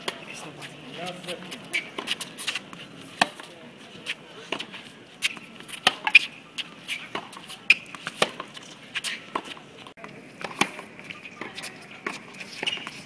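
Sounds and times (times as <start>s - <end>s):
rackets hitting tennis ball: 1.5s - 3.5s, 4.5s - 9.6s.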